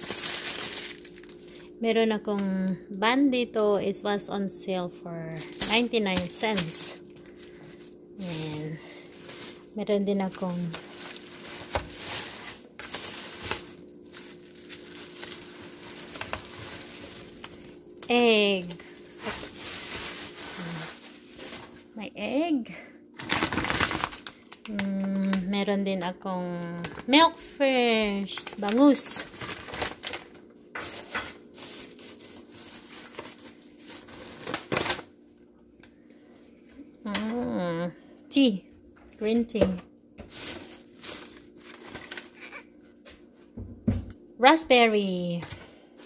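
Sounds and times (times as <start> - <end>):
plastic bag rustling: 0.0 - 1.8, 5.3 - 22.3, 23.2 - 25.5, 26.4 - 35.1, 40.2 - 42.8.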